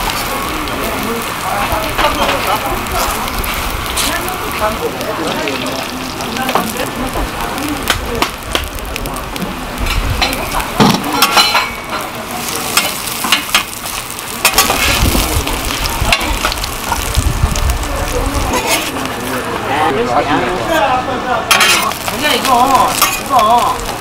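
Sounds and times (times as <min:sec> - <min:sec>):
pancakes sizzling in oil: 0:00.0 - 0:24.0
metal scraper scraping griddle: 0:18.5 - 0:19.0, 0:21.5 - 0:21.9.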